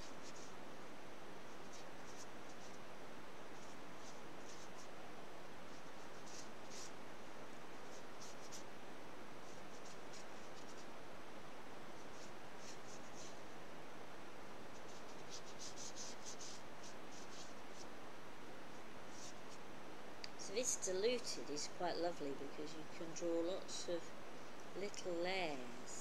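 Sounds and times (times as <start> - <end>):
paintbrush strokes on paper: 0.0 - 0.7, 1.4 - 5.0, 5.6 - 7.0, 7.7 - 8.7, 9.3 - 11.0, 11.9 - 13.5, 14.7 - 18.0, 18.7 - 19.7.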